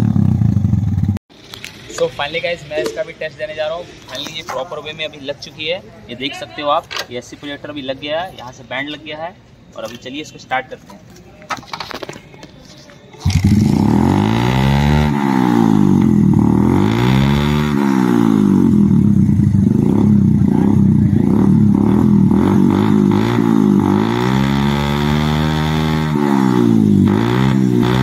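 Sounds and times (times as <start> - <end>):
motorcycle engine revving: 0.0 - 1.2, 13.2 - 28.0.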